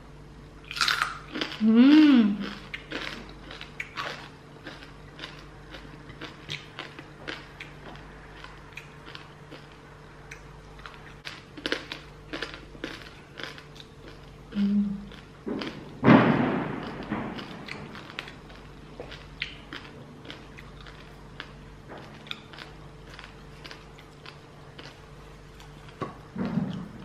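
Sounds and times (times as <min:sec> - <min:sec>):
person humming mmm: 0:01.6 - 0:02.6, 0:14.5 - 0:15.2
crispy skin being chewed: 0:02.4 - 0:16.0, 0:16.8 - 0:27.0.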